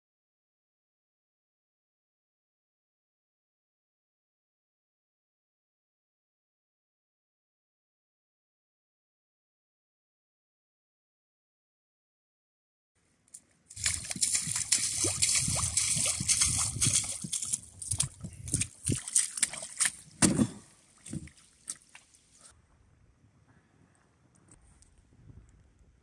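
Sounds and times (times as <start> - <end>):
boots squelching through mud: 13.7 - 22.2.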